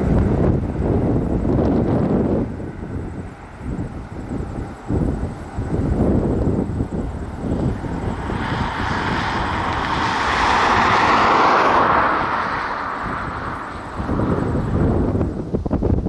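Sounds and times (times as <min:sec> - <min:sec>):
airliner passing: 0:00.0 - 0:15.5
wind buffeting microphone: 0:00.0 - 0:16.0.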